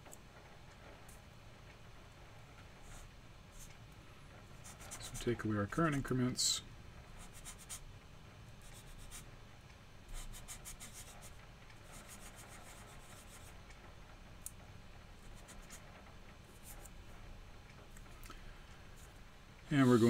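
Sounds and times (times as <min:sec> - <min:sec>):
eraser rubbing whiteboard: 0:04.6 - 0:05.3, 0:07.2 - 0:07.8, 0:10.1 - 0:13.5.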